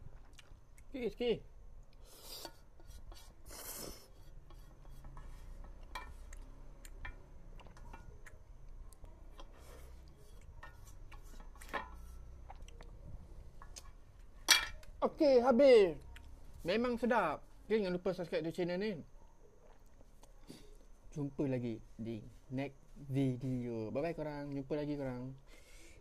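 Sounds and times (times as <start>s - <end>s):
chewing noodles: 12.4s - 13.0s.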